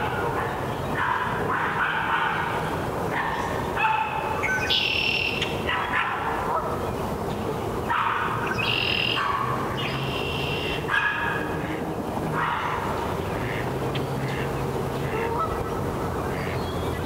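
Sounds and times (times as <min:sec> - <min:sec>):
geese honking: 0:07.9 - 0:17.0.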